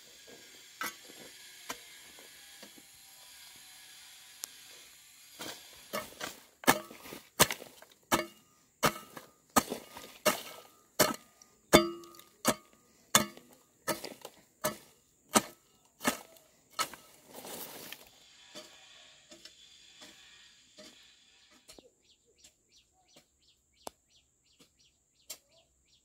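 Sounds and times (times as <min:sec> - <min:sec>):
machete chopping bamboo: 0:05.4 - 0:17.2.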